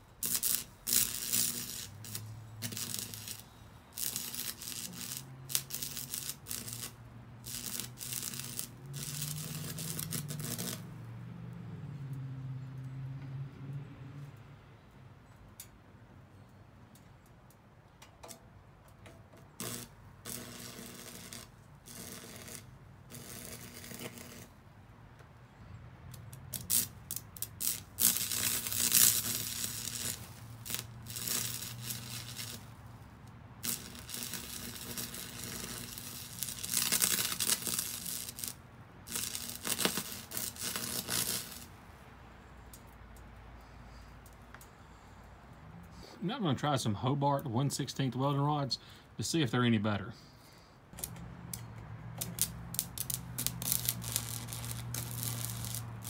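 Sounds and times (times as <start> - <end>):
welding arc crackling: 0.0 - 11.1, 19.5 - 24.6, 26.1 - 41.8, 51.0 - 56.0
low welder hum: 0.0 - 12.1, 19.0 - 43.5, 51.0 - 56.0.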